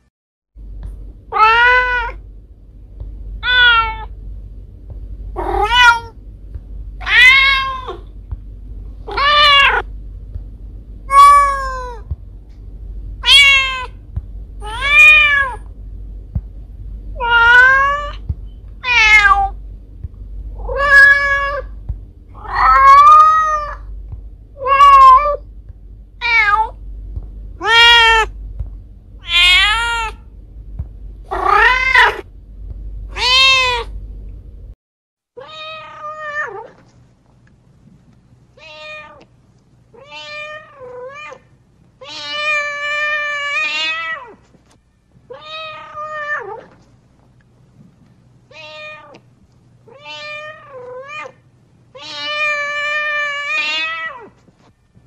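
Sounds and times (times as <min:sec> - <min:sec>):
cat meowing: 0:01.3 - 0:02.2, 0:03.4 - 0:04.1, 0:05.4 - 0:06.1, 0:07.0 - 0:08.0, 0:09.1 - 0:09.8, 0:11.1 - 0:12.1, 0:13.2 - 0:14.0, 0:14.6 - 0:15.6, 0:17.2 - 0:18.2, 0:18.8 - 0:19.6, 0:20.6 - 0:21.7, 0:22.4 - 0:23.9, 0:24.6 - 0:25.4, 0:27.6 - 0:28.3, 0:29.2 - 0:30.2, 0:31.3 - 0:32.2, 0:33.1 - 0:33.9, 0:35.4 - 0:36.7, 0:40.0 - 0:41.4, 0:45.3 - 0:46.7, 0:48.5 - 0:49.2, 0:49.9 - 0:51.4, 0:52.0 - 0:54.4.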